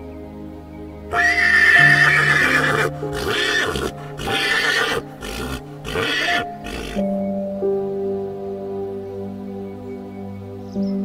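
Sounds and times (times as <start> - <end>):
soft background music: 0.0 - 11.0
horse whinnying: 1.1 - 7.0.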